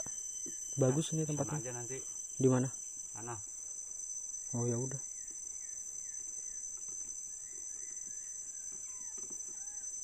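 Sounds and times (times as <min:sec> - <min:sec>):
faint bird chirps: 0:00.0 - 0:10.0
insects droning: 0:00.0 - 0:10.0.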